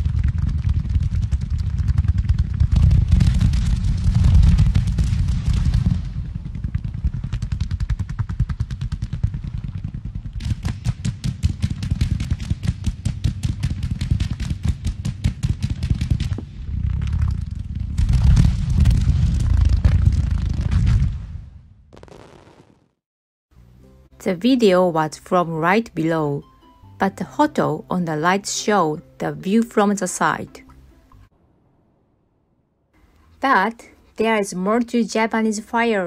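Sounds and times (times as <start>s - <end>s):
low rumble: 0.0s - 11.0s, 16.3s - 21.9s
fast run of cracks: 0.0s - 21.2s
fireworks popping and banging: 0.0s - 23.0s.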